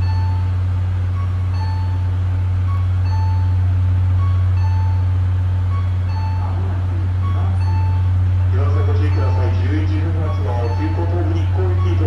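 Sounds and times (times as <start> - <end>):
electric train hum: 0.0 - 12.0
two-note platform chime: 1.2 - 12.0.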